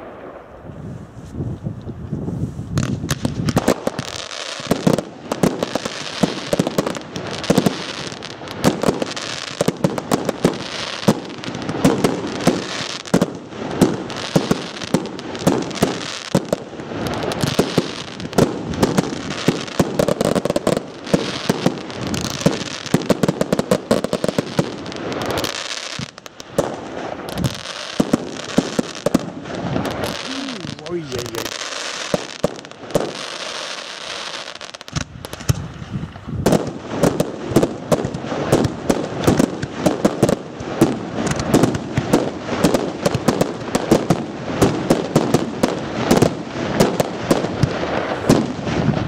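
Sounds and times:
fireworks bangs and crackling: 0:00.0 - 0:49.0.

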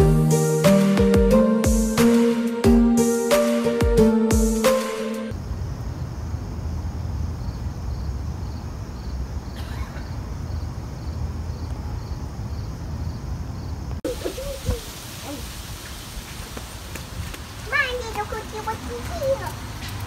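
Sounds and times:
insect chirping: 0:05.3 - 0:15.6.

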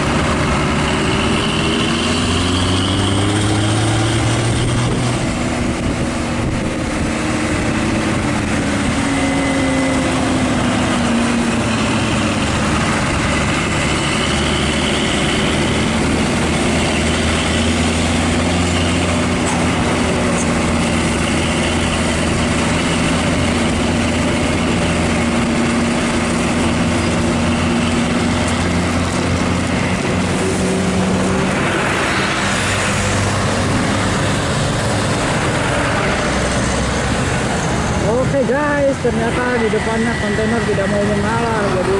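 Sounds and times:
heavy vehicle engines: 0:00.0 - 0:41.9.

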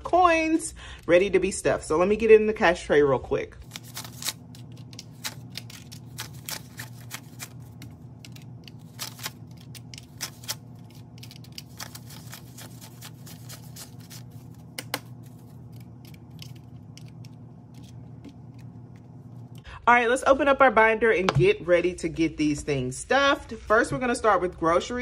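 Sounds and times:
steady low hum: 0:00.0 - 0:25.0
paper banknotes rustling: 0:03.6 - 0:18.2.

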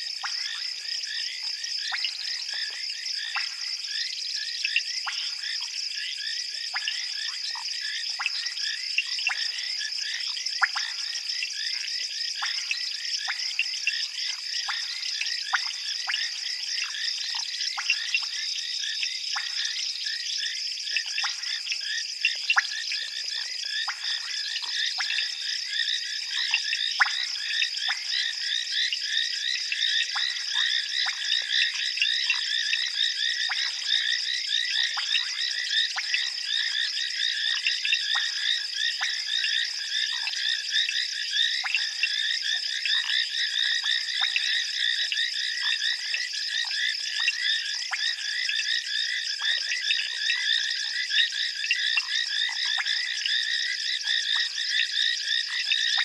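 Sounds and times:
chorus of frogs calling: 0:00.0 - 0:56.0.

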